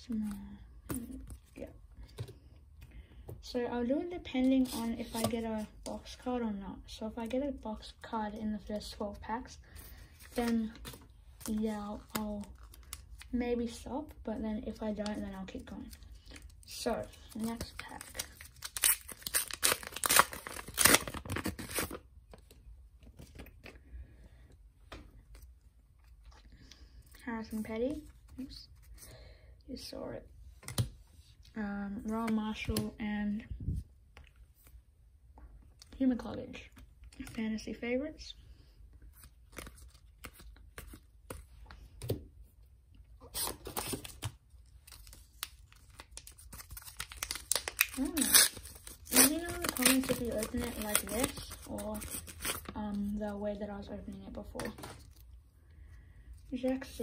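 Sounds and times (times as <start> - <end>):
wrapper tearing and crinkling: 17.1 - 22.0, 43.3 - 52.8.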